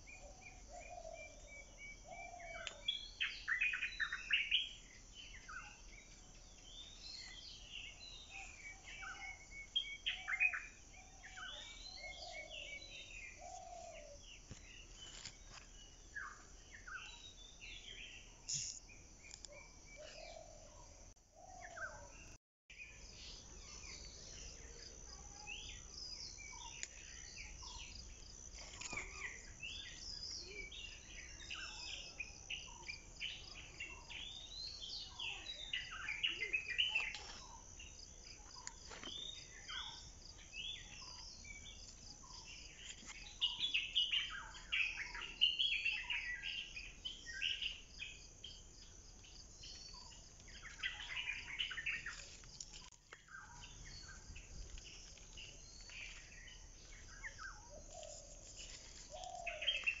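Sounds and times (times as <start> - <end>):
insect trill: 0.0 - 20.8
birds chirping: 0.0 - 60.0.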